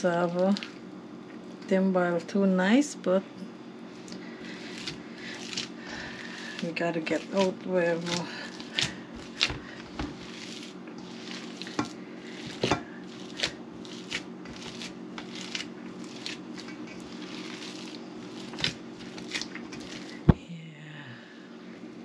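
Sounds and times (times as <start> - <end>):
hands squishing mash: 0.1 - 0.8, 3.9 - 20.4.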